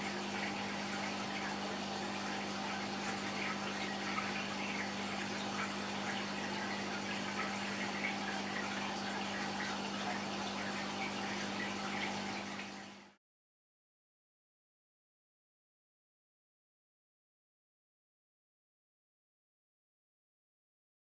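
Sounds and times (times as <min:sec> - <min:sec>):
water trickling and bubbling: 0:00.0 - 0:13.2.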